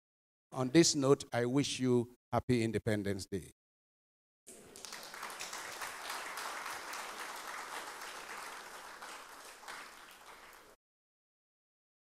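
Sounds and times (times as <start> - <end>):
crowd applauding: 4.5 - 10.8.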